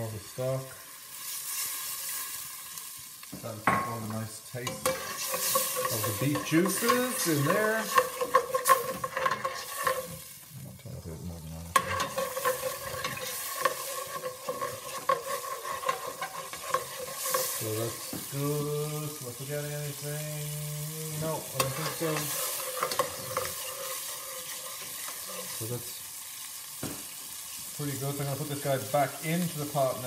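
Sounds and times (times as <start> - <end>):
stock sizzling in a pot: 0.0 - 30.0
metal spoon scraping a pot: 4.6 - 10.4, 11.7 - 18.6, 21.1 - 25.6.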